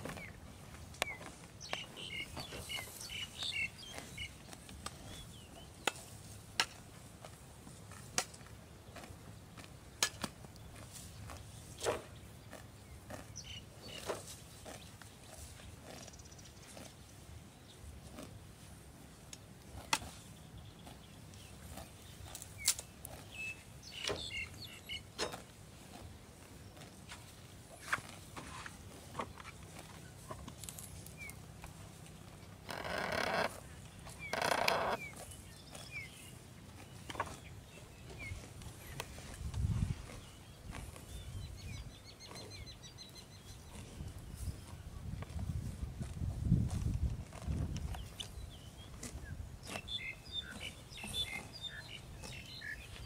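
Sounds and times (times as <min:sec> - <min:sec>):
grass tearing snaps: 0:22.3 - 0:23.2
footsteps rustling in grass: 0:25.3 - 0:41.4, 0:43.7 - 0:49.9
buffalo calf calling: 0:32.6 - 0:35.2.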